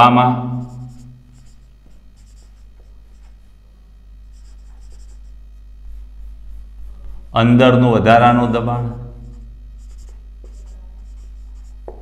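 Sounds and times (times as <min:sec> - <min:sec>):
steady low hum: 0:00.0 - 0:12.0
marker pen scratching on whiteboard: 0:00.6 - 0:03.4, 0:04.3 - 0:06.6, 0:09.2 - 0:12.0.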